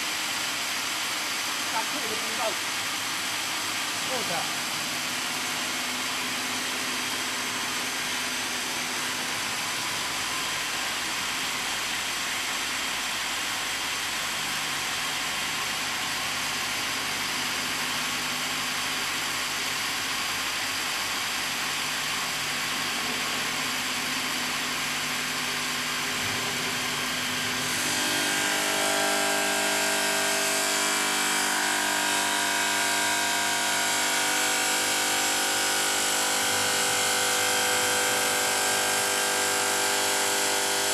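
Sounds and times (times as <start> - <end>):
stone saw grinding whine: 25.6 - 40.9.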